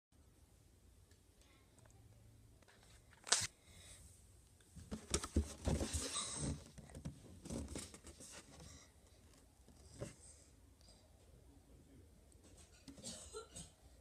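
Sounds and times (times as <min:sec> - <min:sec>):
cardboard box knocks and rustling: 0:04.9 - 0:08.3.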